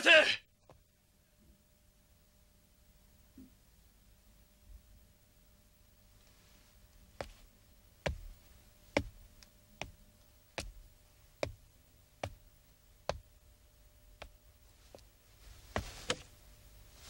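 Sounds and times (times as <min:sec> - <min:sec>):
footsteps on a hard floor: 0:07.2 - 0:07.5, 0:08.1 - 0:08.4, 0:09.0 - 0:09.2, 0:14.2 - 0:16.3.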